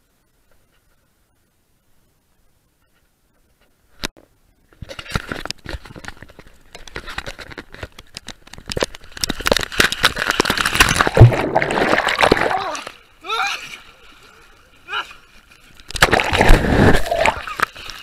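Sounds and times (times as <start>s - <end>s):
camera rustling and crackling: 2.8s - 11.3s.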